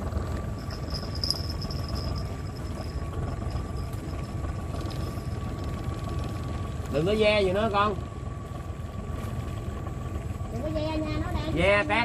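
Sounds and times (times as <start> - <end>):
boat engine idling: 0.0 - 12.0
thin high tone: 0.3 - 5.9.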